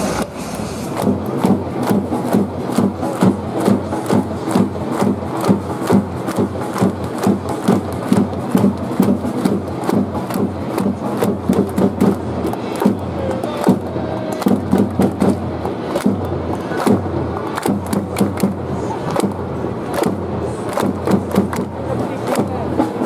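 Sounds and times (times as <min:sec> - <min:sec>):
loud steady beat: 0:00.0 - 0:23.0
crowd chanting: 0:05.8 - 0:23.0.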